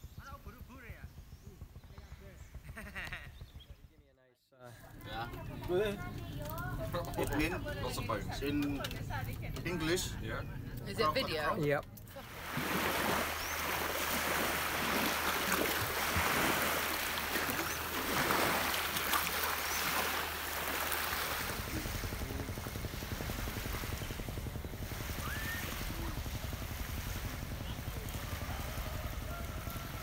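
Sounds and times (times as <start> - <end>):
small waves washing on sand: 12.2 - 30.0
wind on microphone: 21.1 - 30.0.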